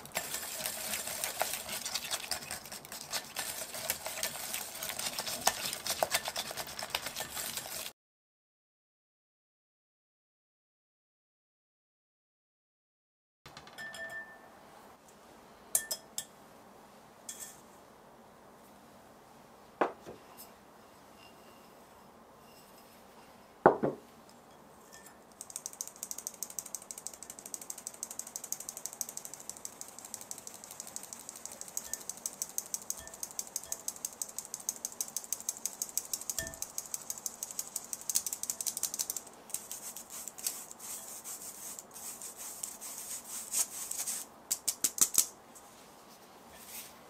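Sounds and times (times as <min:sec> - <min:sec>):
kitchen tool clicking rapidly: 0:25.4 - 0:39.6
utensils knocking against bowl: 0:36.3 - 0:36.7.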